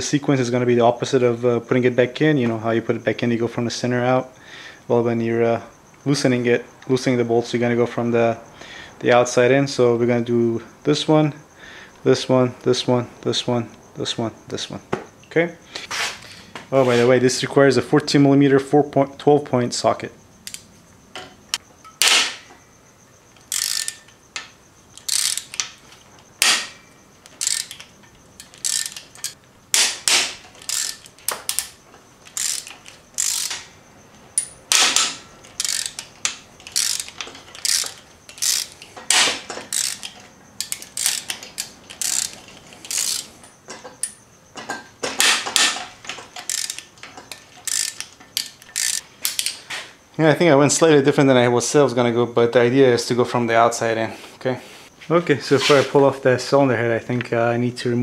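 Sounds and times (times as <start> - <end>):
hand ratchet clicking: 20.4 - 20.7, 23.3 - 33.8, 34.4 - 44.2, 45.1 - 49.6.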